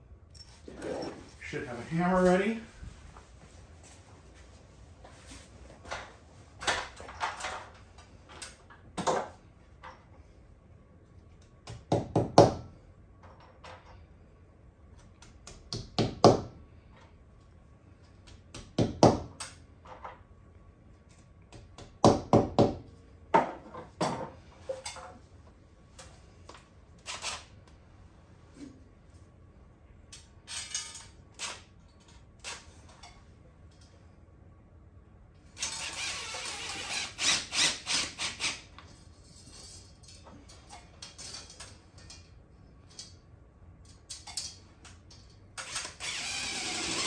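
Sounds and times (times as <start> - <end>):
hammer knocking wall anchors: 11.6 - 12.7, 15.2 - 16.6, 18.3 - 19.4, 21.5 - 22.8.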